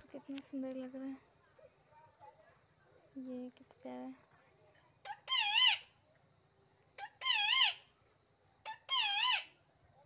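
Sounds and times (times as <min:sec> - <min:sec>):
parrot screeching: 0:05.1 - 0:05.9, 0:07.0 - 0:07.8, 0:08.6 - 0:09.5.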